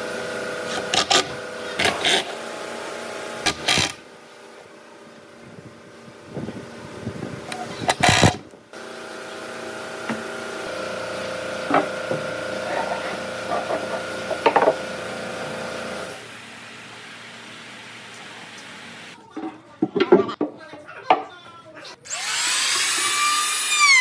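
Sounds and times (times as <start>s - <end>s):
cordless drill driving screws: 3.5s - 4.0s, 22.1s - 24.0s.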